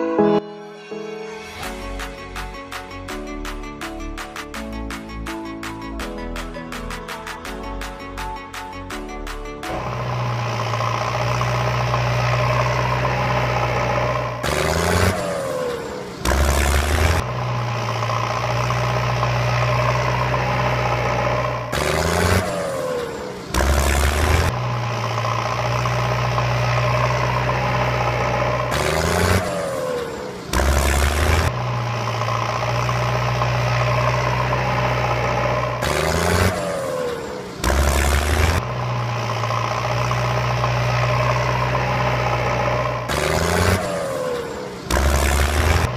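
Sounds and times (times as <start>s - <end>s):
vehicle engine running: 2.0s - 45.9s
engine revving with falling whine: 9.6s - 45.9s.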